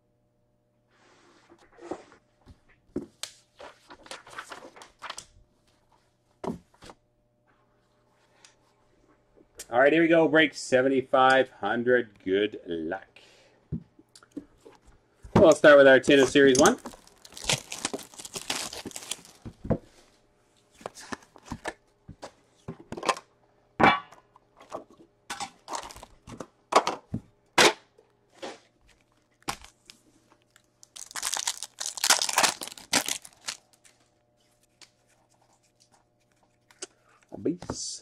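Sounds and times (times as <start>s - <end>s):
foil pack tearing: 16.1s - 19.5s, 25.7s - 26.2s, 29.0s - 30.0s, 30.6s - 34.0s
plastic wrapping crinkling: 16.1s - 19.6s, 25.6s - 26.3s, 28.8s - 36.8s.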